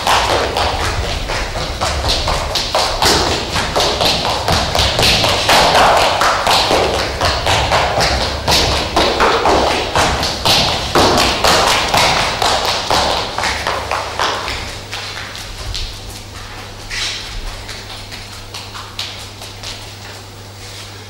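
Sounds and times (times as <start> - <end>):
running footsteps on stage floor: 0.0 - 21.0.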